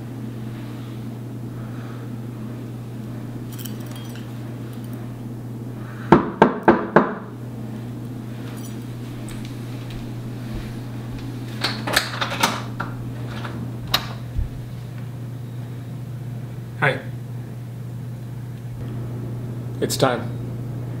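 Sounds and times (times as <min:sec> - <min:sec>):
steady low hum: 0:00.0 - 0:21.0
knocks on a door: 0:06.1 - 0:07.2.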